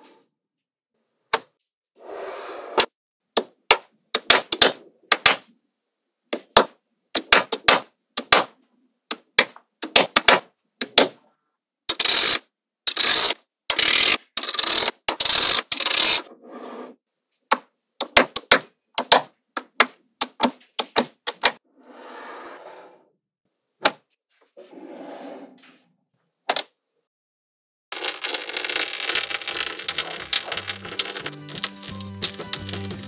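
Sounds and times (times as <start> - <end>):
magnetic balls clicking together: 28.0 - 33.0.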